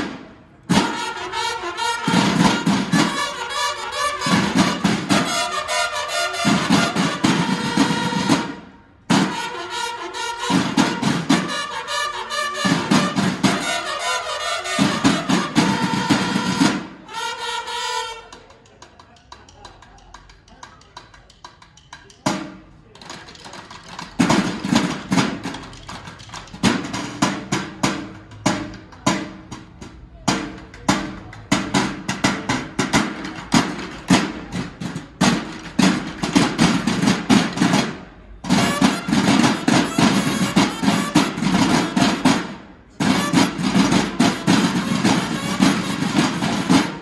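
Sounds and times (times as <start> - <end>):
snare drums playing march cadence: 0.0 - 18.5, 23.6 - 47.0.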